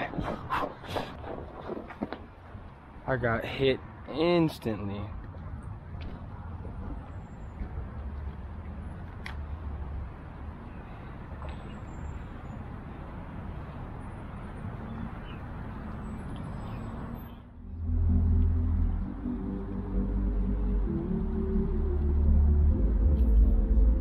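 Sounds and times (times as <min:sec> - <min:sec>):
background music: 0:17.6 - 0:24.0.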